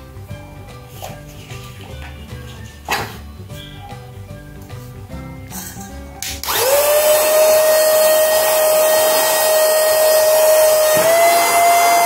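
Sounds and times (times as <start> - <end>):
handheld vacuum cleaner whine: 6.5 - 12.0.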